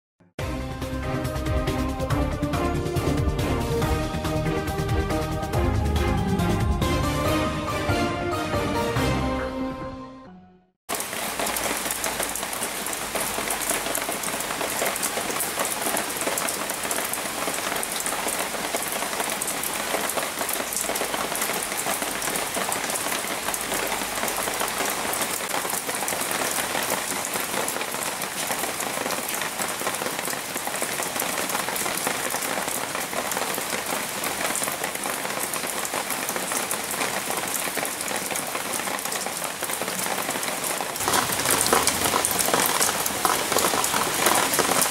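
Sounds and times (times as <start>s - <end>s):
rain pattering on leaves: 10.9s - 44.9s.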